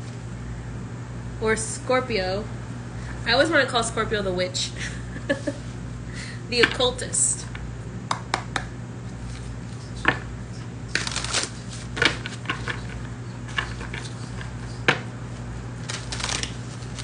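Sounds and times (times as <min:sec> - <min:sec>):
low steady hum: 0:00.0 - 0:17.0
cards being shuffled: 0:09.1 - 0:15.0, 0:15.8 - 0:17.0.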